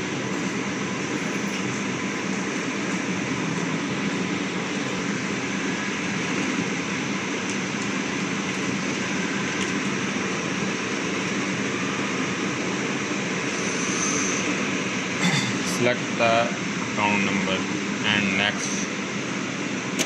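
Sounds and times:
ventilation rushing noise: 0:00.0 - 0:20.0.

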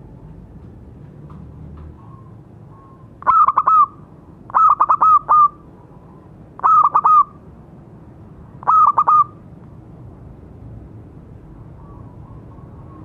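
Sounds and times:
dove cooing: 0:02.0 - 0:05.6, 0:06.6 - 0:07.4, 0:08.6 - 0:09.4.

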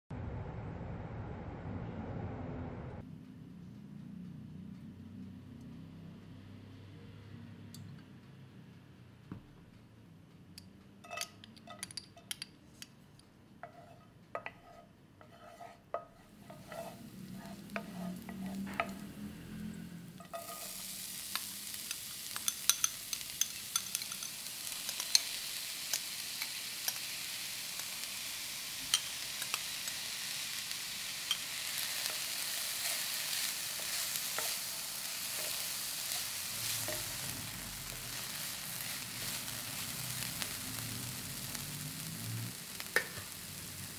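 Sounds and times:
wooden spatula stirring: 0:13.6 - 0:19.0
vegetables sizzling in oil: 0:13.7 - 0:43.9
hot oil ticking and popping: 0:20.3 - 0:28.0, 0:28.8 - 0:30.1, 0:35.8 - 0:43.9.

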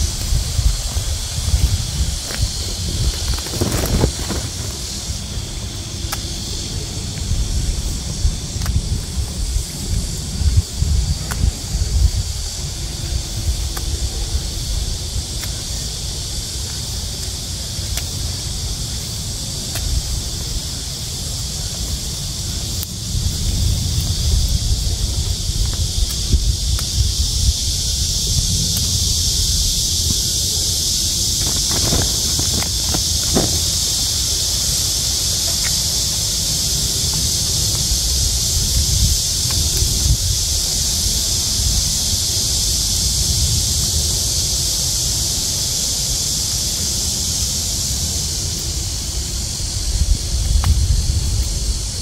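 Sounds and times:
leaves rustling: 0:00.0 - 0:08.0, 0:27.3 - 0:41.6
steady high hiss: 0:00.0 - 0:52.0
wind rumbling on microphone: 0:00.0 - 0:52.0
peppers snapping off plants: 0:02.2 - 0:04.9, 0:31.3 - 0:34.0.

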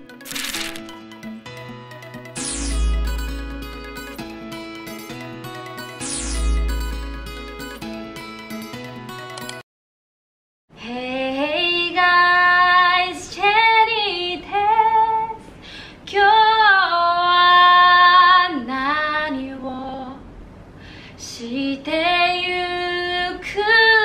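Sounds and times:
woman singing unaccompanied: 0:10.8 - 0:15.4, 0:16.1 - 0:20.2, 0:21.2 - 0:24.0.

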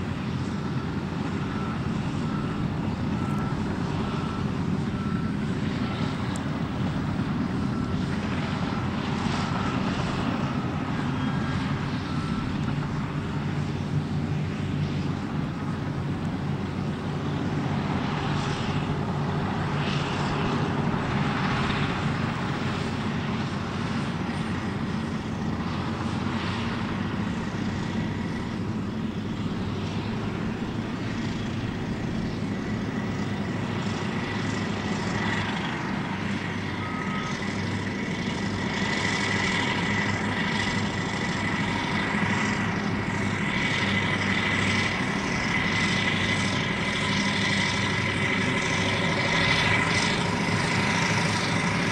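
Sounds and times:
heavy diesel machines running: 0:00.0 - 0:51.9.

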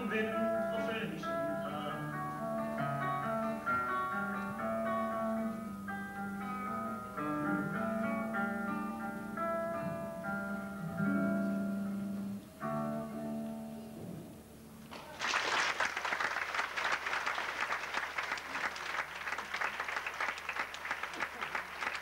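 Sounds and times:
acoustic guitar chords: 0:00.0 - 0:14.9
audience applause: 0:14.9 - 0:22.0.

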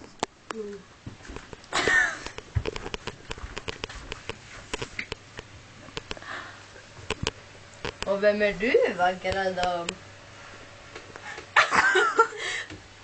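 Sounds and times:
irregular clicks and taps: 0:00.0 - 0:06.2, 0:07.0 - 0:08.1.

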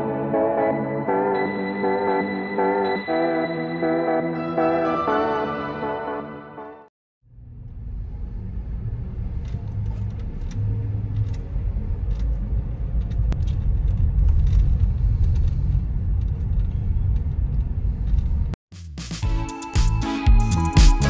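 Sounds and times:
car road and engine rumble: 0:07.3 - 0:18.6.

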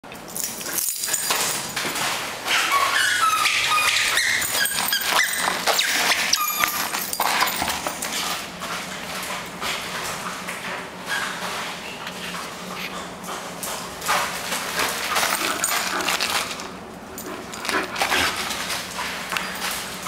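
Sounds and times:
dog whining and squealing: 0:02.5 - 0:07.0
dog claws scrabbling on tile: 0:09.2 - 0:20.0.

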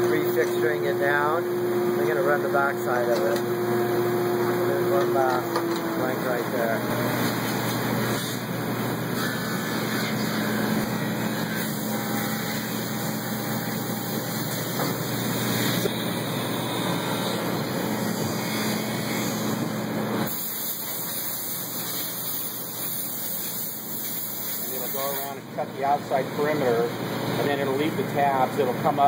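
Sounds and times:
milling machine hum: 0:00.0 - 0:29.0.

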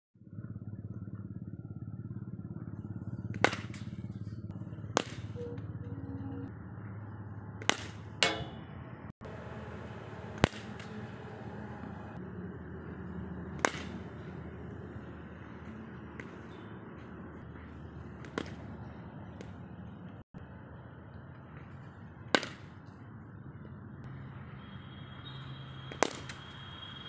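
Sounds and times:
cricket ball striking bat: 0:03.3 - 0:03.9, 0:05.0 - 0:05.4, 0:07.6 - 0:08.7, 0:13.6 - 0:14.0, 0:18.2 - 0:18.6, 0:25.9 - 0:26.4.

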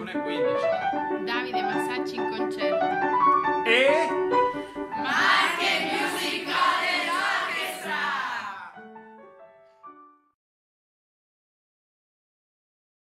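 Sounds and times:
piano music: 0:00.0 - 0:10.4
young people calling out together: 0:05.1 - 0:08.7.

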